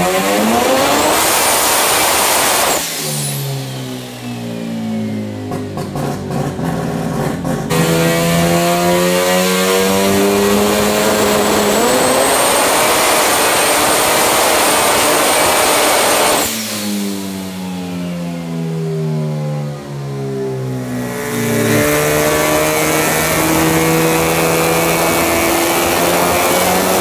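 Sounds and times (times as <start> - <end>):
rotary engine revving: 0.0 - 17.5, 20.7 - 27.0
engine crackles: 5.0 - 8.0.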